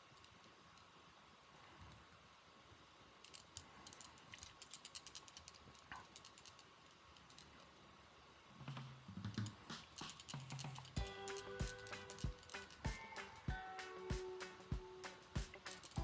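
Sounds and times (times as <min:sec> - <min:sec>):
faint small clicks: 0:00.0 - 0:01.0, 0:03.1 - 0:07.7.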